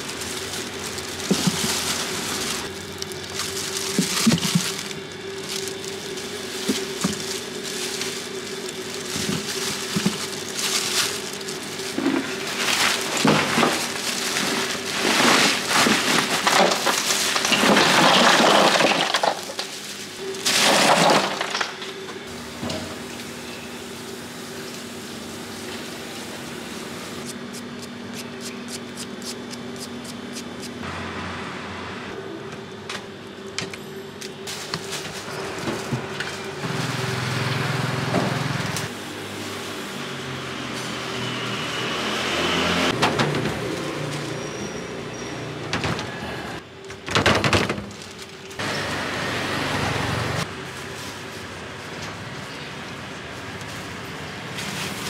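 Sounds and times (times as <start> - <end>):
plastic bags rustling: 0.0 - 22.0, 34.3 - 37.5, 47.0 - 48.6.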